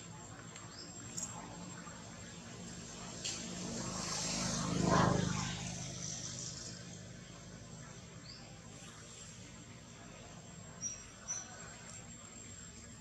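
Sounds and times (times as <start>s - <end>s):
motor vehicle passing: 1.4s - 8.3s.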